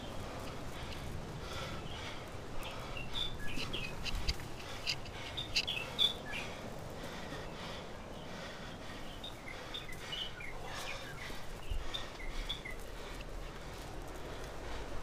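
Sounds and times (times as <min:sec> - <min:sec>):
leaves rustling: 0:00.0 - 0:15.0
bird chirps: 0:02.6 - 0:06.5.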